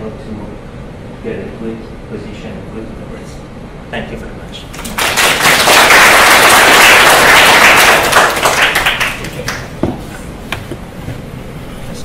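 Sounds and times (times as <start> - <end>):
audience applauding: 4.8 - 9.7.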